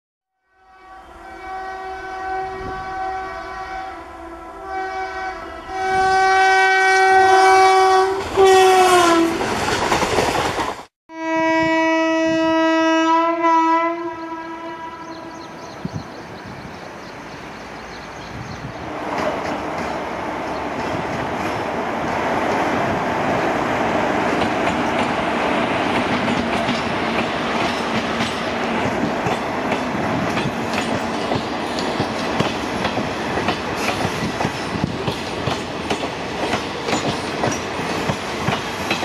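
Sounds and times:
train horn blasts: 0:00.4 - 0:09.5, 0:11.1 - 0:15.5
train wheel clatter: 0:09.4 - 0:10.9, 0:24.2 - 0:39.0
train rumble: 0:15.0 - 0:39.0.

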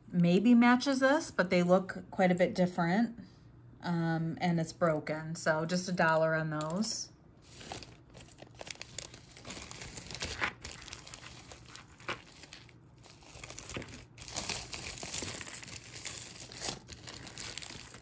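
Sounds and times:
jewelry rustling and clicking: 0:11.0 - 0:18.0.

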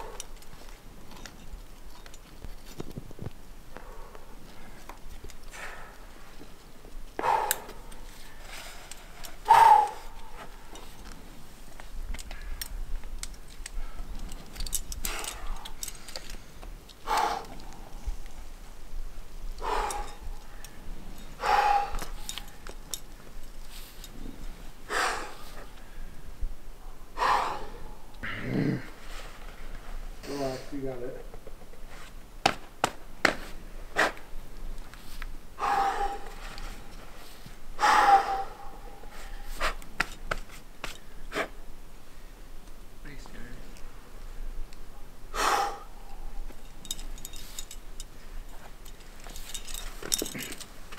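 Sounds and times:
climbing gear clinking: 0:00.0 - 0:03.2, 0:03.8 - 0:18.6, 0:19.5 - 0:25.9, 0:45.6 - 0:50.9
person breathing hard: 0:17.0 - 0:18.0, 0:19.6 - 0:22.6, 0:24.8 - 0:26.2, 0:27.2 - 0:29.2, 0:35.6 - 0:39.8, 0:45.3 - 0:46.4
person grunting: 0:28.2 - 0:28.9
person exhaling forcefully: 0:45.3 - 0:46.0.

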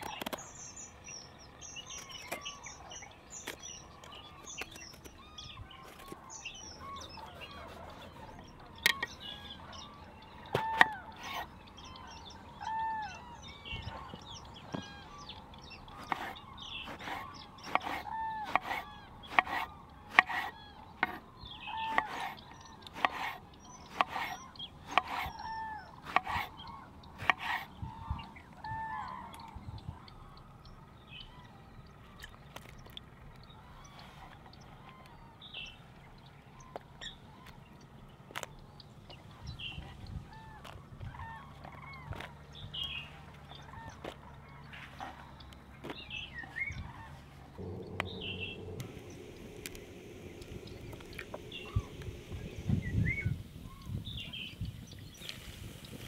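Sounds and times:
high bird chirping: 0:47.6 - 0:55.3.

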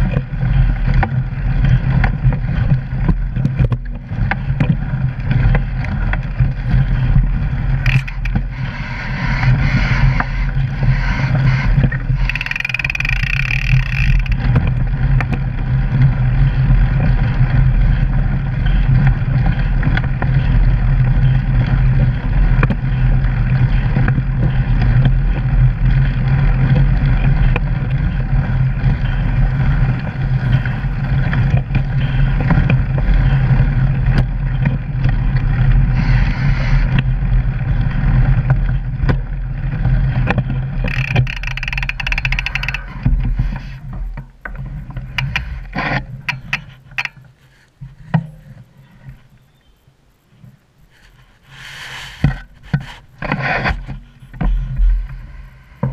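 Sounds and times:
bike rolling over gravel: 0:00.0 - 0:49.8, 0:50.4 - 0:55.9
small clicks and knocks: 0:07.8 - 0:08.8, 0:10.0 - 0:15.4, 0:40.2 - 0:51.5
high-pitched squeal: 0:07.8 - 0:14.4.

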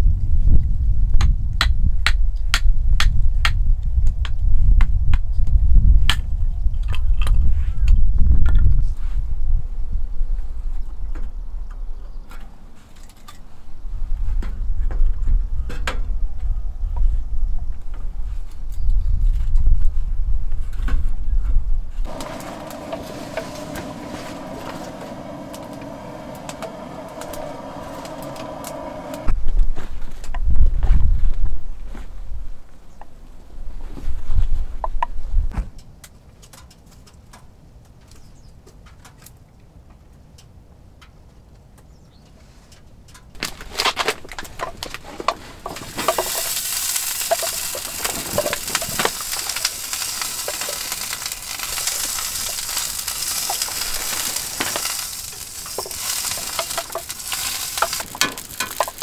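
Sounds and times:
wind rumble on microphone: 0:00.0 - 0:12.7, 0:13.5 - 0:35.8, 0:43.4 - 0:59.0
wood crackling: 0:22.0 - 0:29.3, 0:43.3 - 0:59.0
gas torch hissing: 0:22.1 - 0:29.3, 0:45.6 - 0:59.0.

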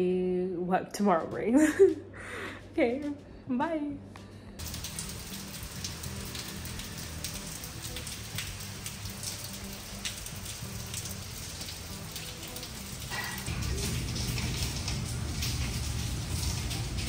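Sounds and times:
raindrops splatting close by: 0:04.6 - 0:17.0
steady rain falling: 0:04.6 - 0:17.0.

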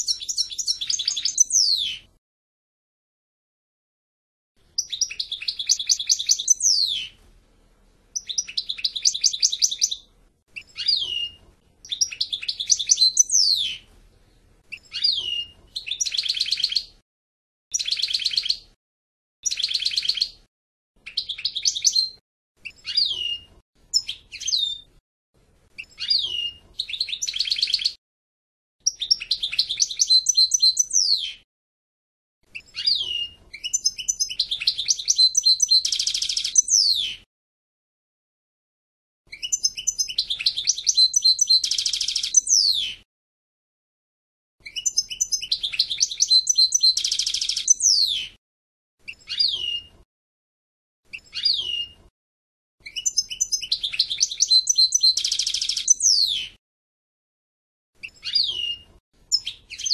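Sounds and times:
bird twittering song: 0:00.0 - 0:02.2, 0:04.7 - 0:07.2, 0:08.1 - 0:17.0, 0:17.7 - 0:18.8, 0:19.4 - 0:25.0, 0:25.8 - 0:28.0, 0:28.8 - 0:31.4, 0:32.5 - 0:37.3, 0:39.3 - 0:43.0, 0:44.6 - 0:48.4, 0:49.1 - 0:50.0, 0:51.1 - 0:52.0, 0:52.8 - 0:56.6, 0:58.0 - 0:59.9.

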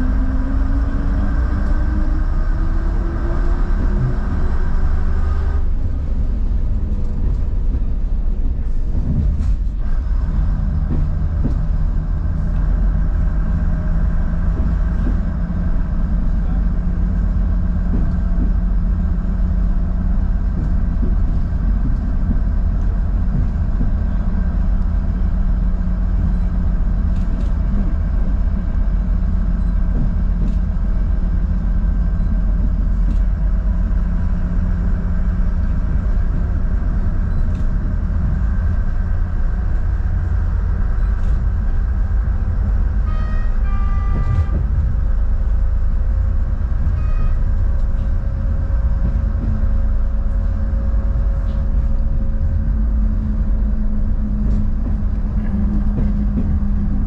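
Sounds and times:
train rumbling on track: 0:00.0 - 0:57.0
train horn: 0:43.0 - 0:44.9, 0:46.8 - 0:47.7.

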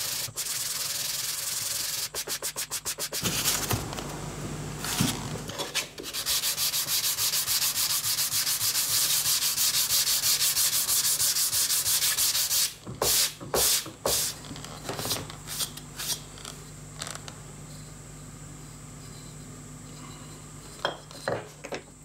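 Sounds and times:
sanding block rubbing wood: 0:00.0 - 0:03.6, 0:05.8 - 0:14.4.

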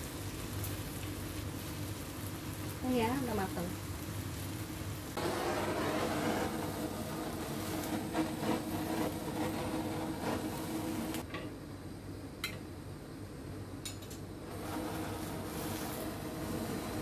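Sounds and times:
kitchen torch hissing: 0:00.0 - 0:11.3, 0:14.4 - 0:17.0
torch igniter clicks: 0:06.0 - 0:11.3.

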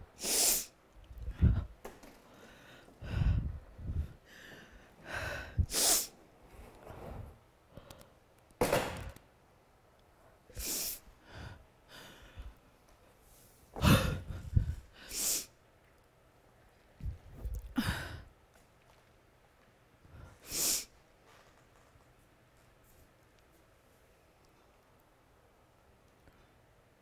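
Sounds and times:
person breathing hard: 0:00.2 - 0:06.2, 0:10.5 - 0:12.7, 0:13.8 - 0:15.6, 0:17.5 - 0:18.4.

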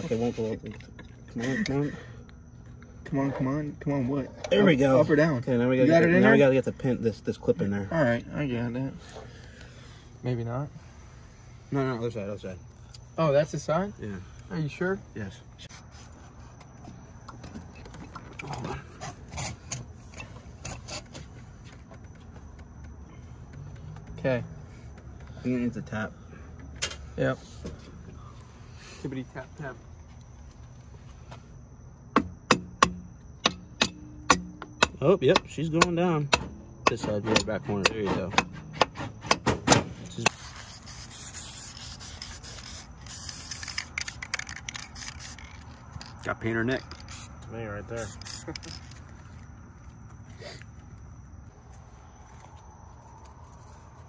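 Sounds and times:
aerosol spray can hissing: 0:40.3 - 0:45.5, 0:48.0 - 0:48.8
metal parts scraping and rubbing: 0:40.3 - 0:47.3, 0:47.9 - 0:49.4.

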